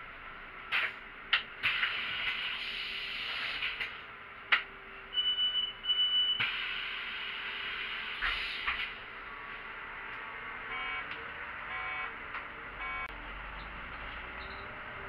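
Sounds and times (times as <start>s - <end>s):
bus low hum: 0.0s - 15.0s
bus air hiss: 1.6s - 4.1s, 6.4s - 9.1s
high beeps: 5.1s - 6.4s, 10.7s - 11.1s, 11.7s - 12.1s, 12.8s - 13.1s.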